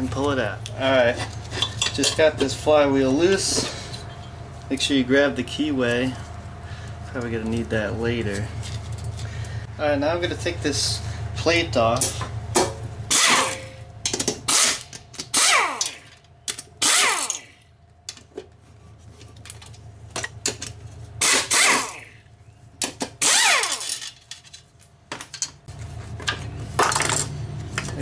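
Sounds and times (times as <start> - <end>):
pneumatic impact wrench whirring: 13.1 - 13.7, 14.4 - 16.1, 16.8 - 17.6, 21.2 - 22.2, 23.1 - 24.1.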